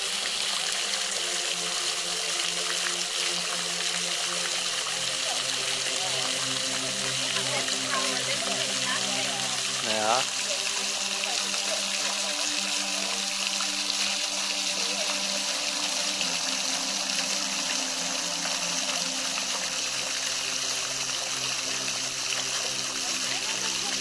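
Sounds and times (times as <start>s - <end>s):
water trickling and splashing: 0.0s - 24.0s.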